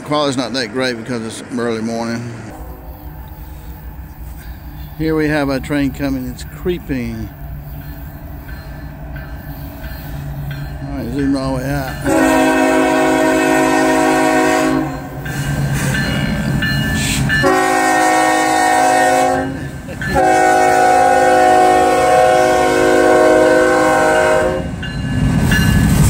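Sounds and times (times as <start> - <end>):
train rumble: 0.0 - 26.0
locomotive air horn blasts: 12.0 - 15.2, 17.4 - 24.7.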